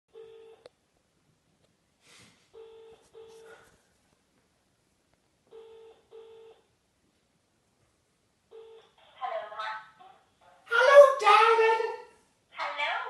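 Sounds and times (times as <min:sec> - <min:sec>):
telephone ringback tone: 0:00.1 - 0:00.6, 0:02.6 - 0:03.6, 0:05.5 - 0:06.7, 0:08.5 - 0:08.9.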